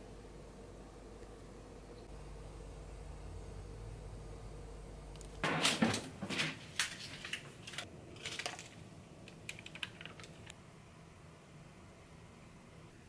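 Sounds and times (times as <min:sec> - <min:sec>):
metal baking tray clattering: 0:05.4 - 0:08.8.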